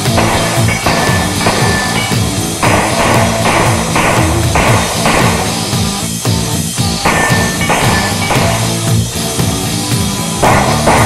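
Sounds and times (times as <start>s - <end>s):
rock music with drums: 0.0s - 11.0s.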